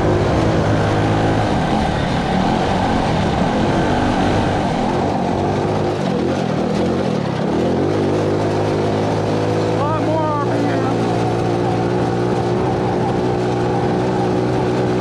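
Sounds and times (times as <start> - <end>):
wind rushing over microphone: 0.0 - 10.2
go-kart engine running under load: 0.0 - 15.0.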